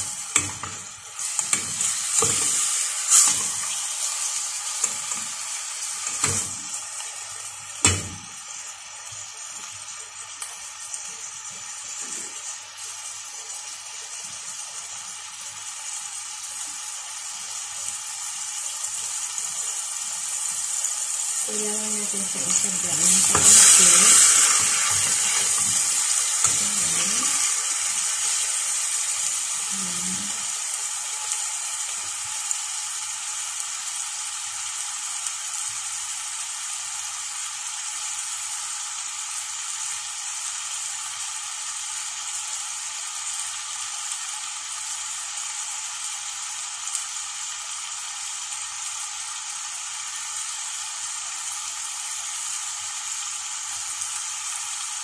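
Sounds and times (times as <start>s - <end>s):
chicken sizzling in a pot: 0.0s - 55.0s
spoon stirring in a pot: 0.1s - 3.9s, 22.5s - 27.6s.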